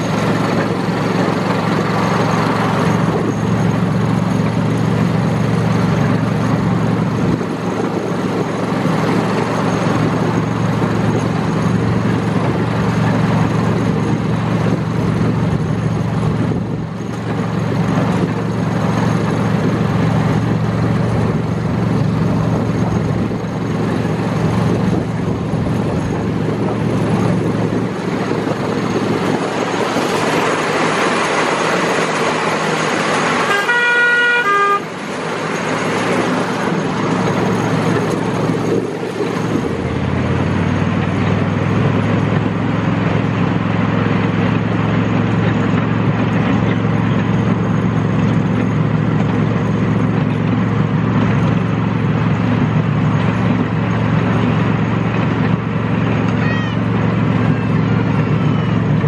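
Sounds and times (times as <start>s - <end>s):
miniature locomotive drone: 0.0s - 59.0s
two-note train horn: 33.4s - 35.0s.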